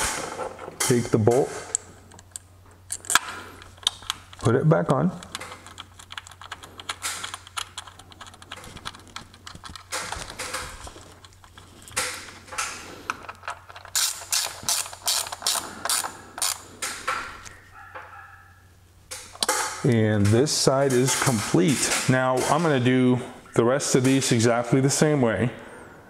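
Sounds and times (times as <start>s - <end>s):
ratchet wrench clicking: 13.8s - 17.1s.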